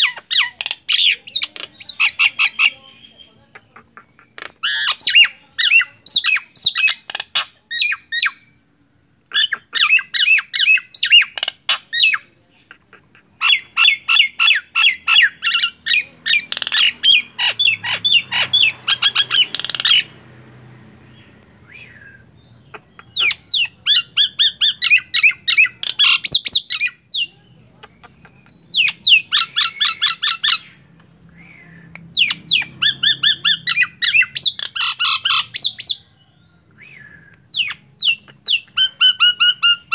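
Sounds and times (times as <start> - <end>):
myna squawking: 9.3 - 20.2.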